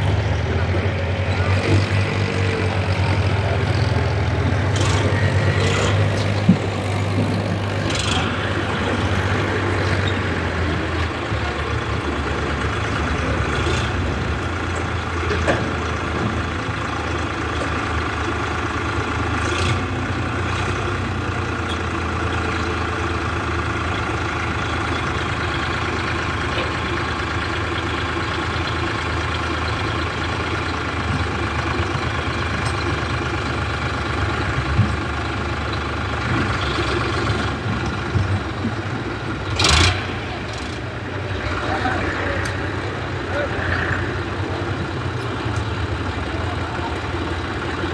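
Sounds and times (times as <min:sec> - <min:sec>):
tractor diesel engine running: 0:00.0 - 0:47.9.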